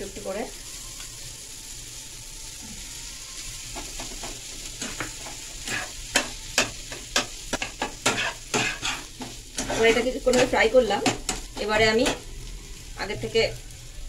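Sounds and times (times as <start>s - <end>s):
vegetables sizzling in oil: 0.0s - 14.0s
spatula scraping and knocking pan: 3.8s - 12.2s.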